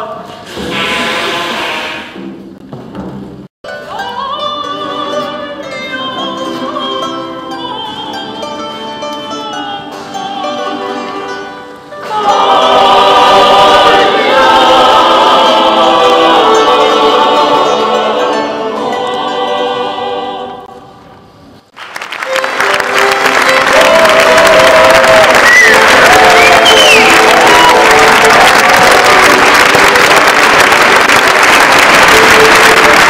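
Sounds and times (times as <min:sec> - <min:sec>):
opera voices singing: 0:09.3 - 0:21.1, 0:23.4 - 0:33.0
audience applause: 0:21.7 - 0:33.0.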